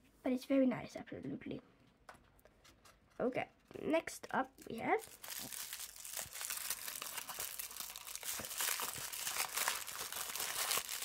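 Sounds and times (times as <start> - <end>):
tissue paper crinkling: 5.0 - 11.0.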